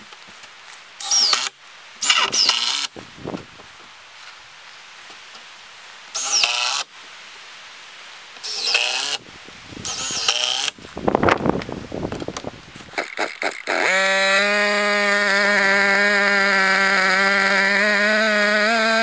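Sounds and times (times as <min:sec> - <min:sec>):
cordless drill driving fasteners: 0:01.0 - 0:02.9, 0:06.2 - 0:06.9, 0:08.4 - 0:09.2, 0:09.8 - 0:10.8, 0:12.9 - 0:19.0.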